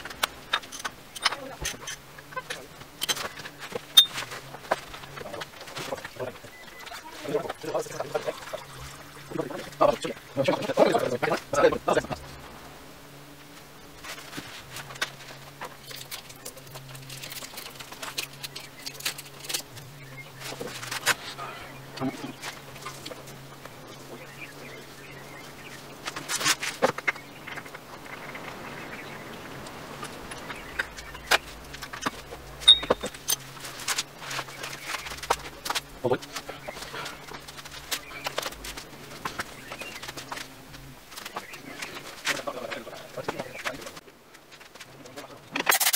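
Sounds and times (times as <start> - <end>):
faint low hum: 0.0 - 45.6
ringing metallic ping: 32.7 - 33.1
metal tools clinking: 32.7 - 33.4.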